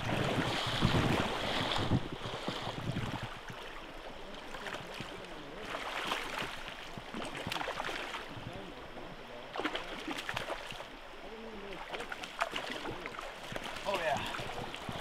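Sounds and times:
wind buffeting microphone: 0.0 - 3.7, 13.6 - 15.0
river water splashing: 0.0 - 15.0.

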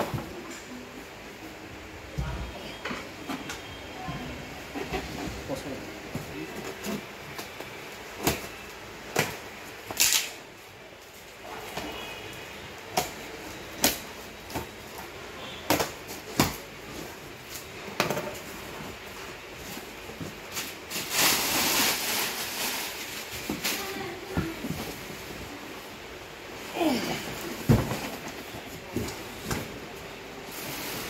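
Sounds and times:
packing tape pulled off: 10.0 - 10.4
cardboard flaps knocking and crackling: 27.6 - 29.8.

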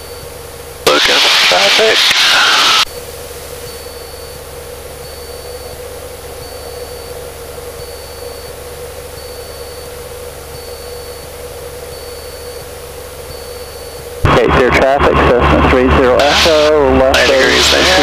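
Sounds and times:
airplane engine droning: 0.0 - 18.0
faint high beep: 3.6 - 14.2.

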